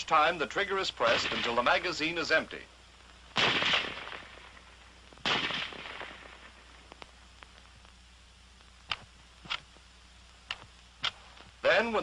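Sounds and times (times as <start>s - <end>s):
rifle shot: 1.0s - 1.7s, 3.4s - 6.8s.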